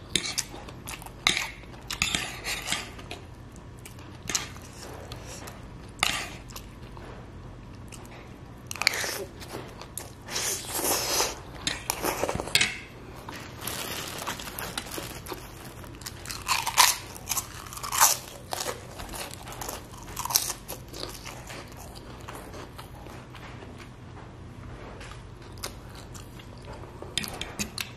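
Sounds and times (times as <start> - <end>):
cracker crunching: 7.9 - 23.1
chewing noodles: 13.2 - 23.1.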